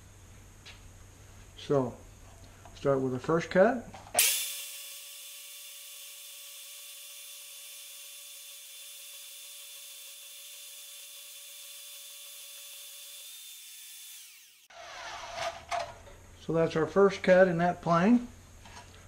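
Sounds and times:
band saw cutting steel: 0:04.2 - 0:15.6.

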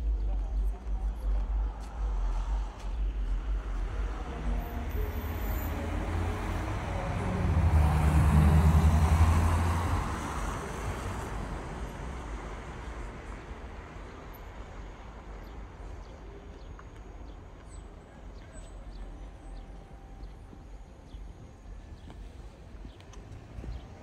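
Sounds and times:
distant traffic: 0:00.0 - 0:24.0
car driving past: 0:02.4 - 0:13.2.

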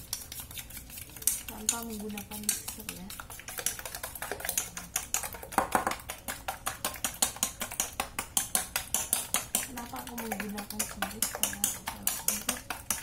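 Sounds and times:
chopsticks clicking in metal bowl: 0:00.1 - 0:13.0.

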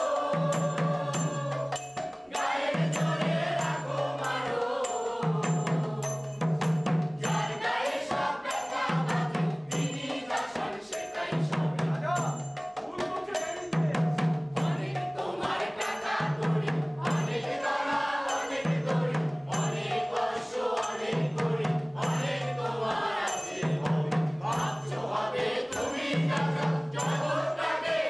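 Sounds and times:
chorus singing: 0:00.0 - 0:28.0
percussion beat: 0:00.0 - 0:28.0.

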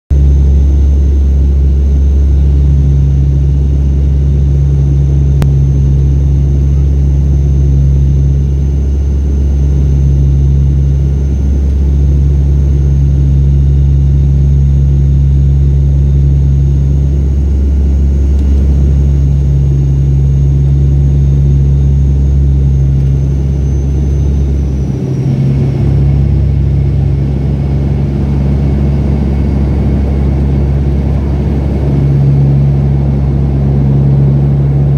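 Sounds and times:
turboprop cabin drone: 0:00.1 - 0:34.9
high whine sliding down in pitch: 0:00.2 - 0:34.9.

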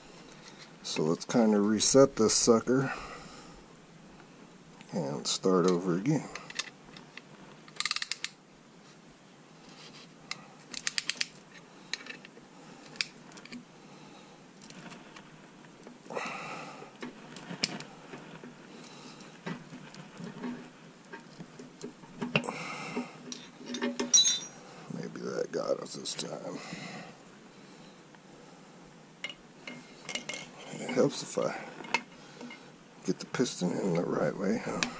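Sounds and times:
metal clicks: 0:07.7 - 0:08.4
ratchet clicks: 0:07.8 - 0:08.4, 0:10.8 - 0:11.3.

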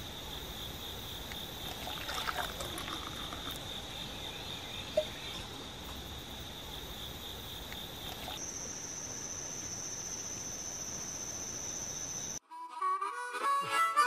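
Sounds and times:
insects droning: 0:00.0 - 0:12.4
harmonica music: 0:12.4 - 0:14.0.

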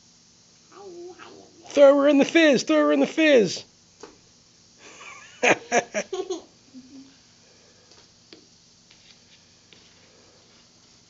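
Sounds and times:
girl giggling: 0:05.0 - 0:07.2.

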